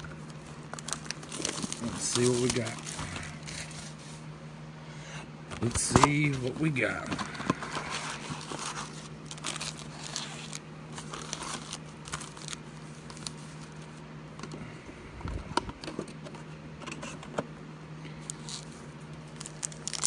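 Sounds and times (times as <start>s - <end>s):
steady low hum: 0.0s - 20.0s
foil packs rustling and crinkling: 0.2s - 4.2s, 5.6s - 13.9s, 19.3s - 20.0s.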